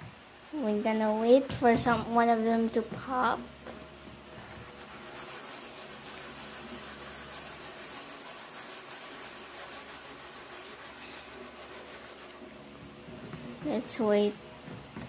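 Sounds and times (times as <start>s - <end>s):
hot oil sizzling in pot: 0.0s - 14.4s.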